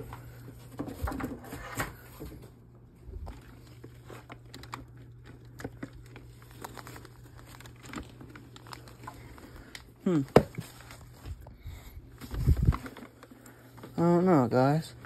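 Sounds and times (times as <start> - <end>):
steady low hum: 0.0 - 15.0
soft handling clicks and rustles: 3.2 - 14.0.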